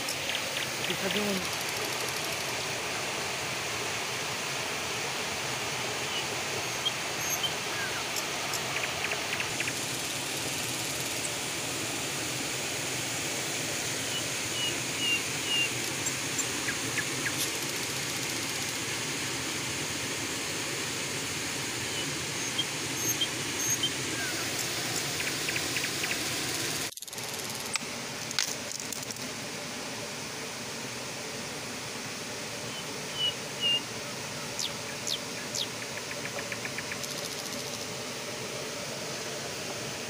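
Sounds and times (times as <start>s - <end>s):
river water rushing: 0.0s - 26.9s.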